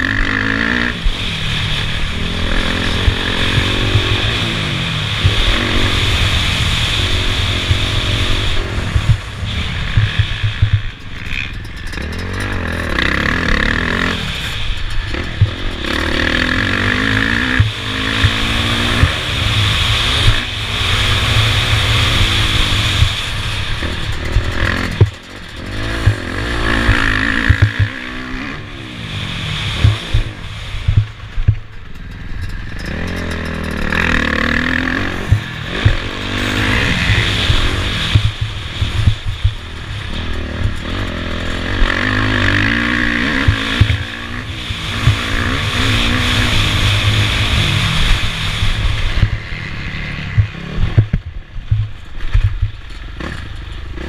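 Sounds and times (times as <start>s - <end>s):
motocross engine revving: 0.0s - 54.0s
bike knocking over bumps: 3.0s - 4.2s, 8.9s - 12.6s, 29.8s - 41.2s, 41.8s - 44.1s.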